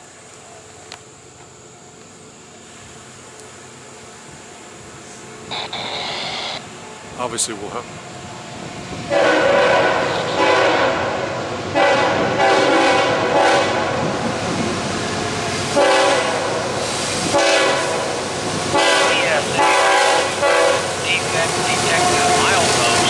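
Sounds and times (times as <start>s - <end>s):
locomotive air horn blasts: 9.1s - 14.1s, 15.7s - 21.0s.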